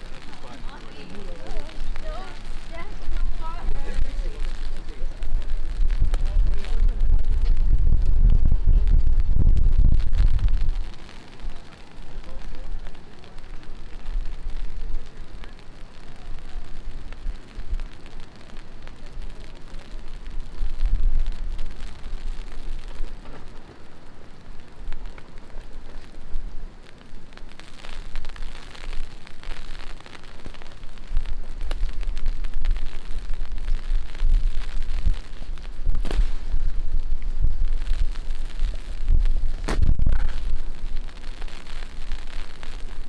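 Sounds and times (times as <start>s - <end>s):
low rumble: 0.0s - 11.0s, 31.0s - 43.0s
heavy rain falling: 0.0s - 43.0s.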